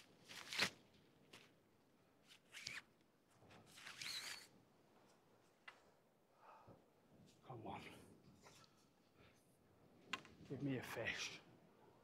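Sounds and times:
short squeaky scrapes: 0:03.7 - 0:04.5.

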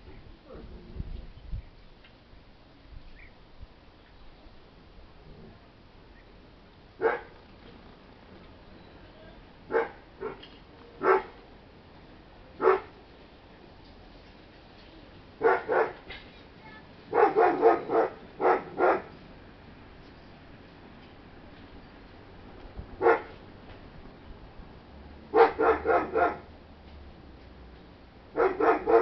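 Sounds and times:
dog barking: 0:07.0 - 0:07.3, 0:09.7 - 0:10.4, 0:11.0 - 0:11.4, 0:12.6 - 0:13.0, 0:15.4 - 0:16.0, 0:17.1 - 0:19.1, 0:23.0 - 0:23.3, 0:25.3 - 0:26.5, 0:28.4 - 0:29.0.

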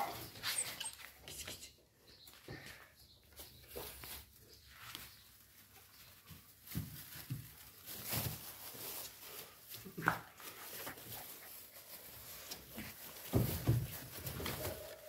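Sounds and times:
puppies rustling shredded paper: 0:03.3 - 0:15.0.

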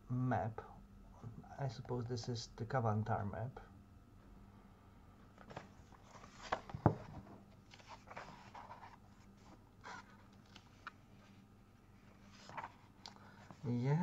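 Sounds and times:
book pages rustling: 0:05.4 - 0:14.0.

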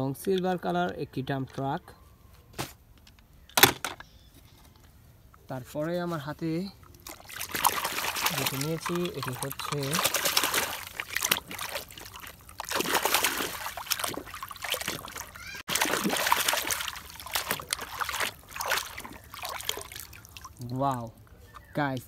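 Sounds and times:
water splashing and sloshing: 0:05.4 - 0:22.0.

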